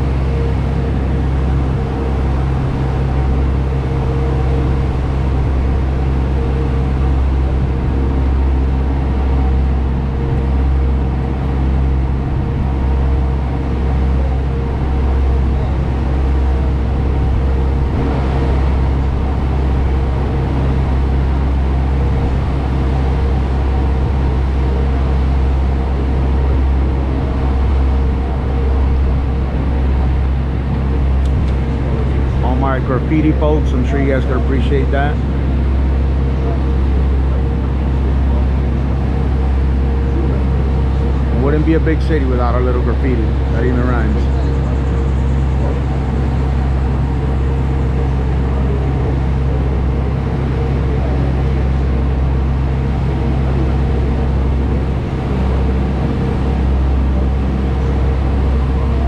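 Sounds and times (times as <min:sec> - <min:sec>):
boat engine drone: 0:00.0 - 0:59.0.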